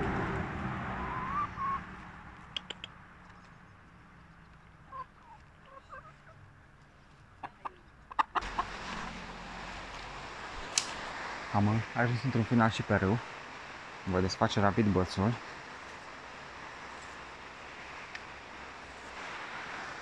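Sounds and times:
sharp clicks: 2.4 - 3.5
hens clucking softly: 4.9 - 6.5, 7.3 - 9.4.

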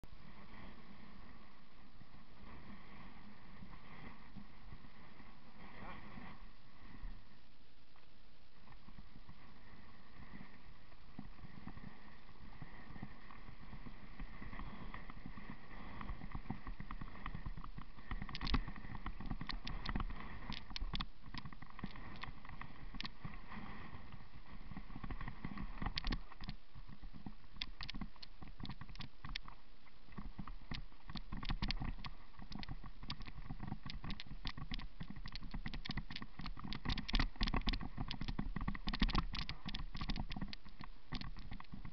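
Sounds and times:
bike knocking and rattling: 16.0 - 23.3, 30.2 - 41.9.

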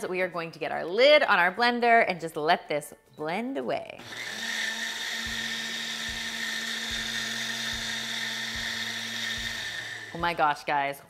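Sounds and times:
blender motor whining: 4.0 - 10.5.

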